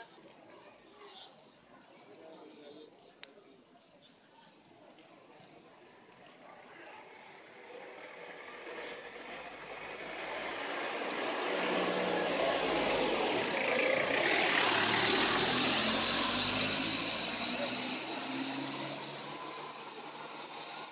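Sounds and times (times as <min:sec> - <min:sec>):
vehicle passing: 0:07.5 - 0:20.9.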